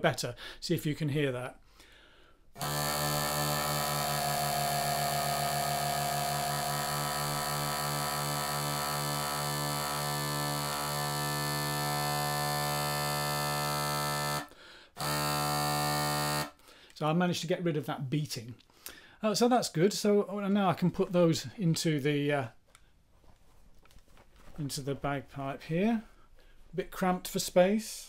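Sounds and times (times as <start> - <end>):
bagpipe drones: 2.6 - 16.6.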